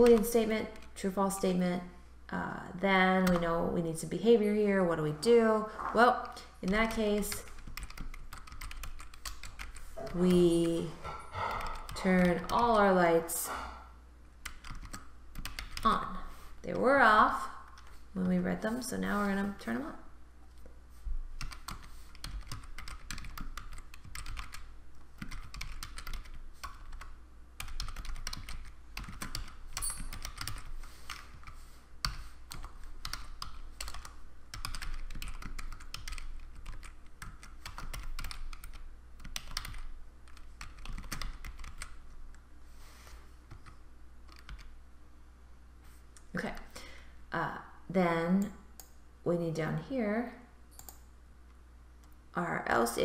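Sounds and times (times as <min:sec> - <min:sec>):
typing on computer keyboard: 0:00.0 - 0:01.0, 0:06.2 - 0:10.8, 0:14.4 - 0:16.0, 0:21.4 - 0:42.0, 0:43.5 - 0:44.7, 0:50.8 - 0:51.0.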